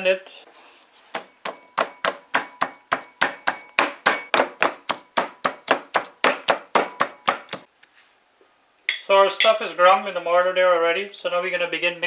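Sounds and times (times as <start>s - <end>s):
pestle pounding in stone mortar: 1.1s - 7.7s.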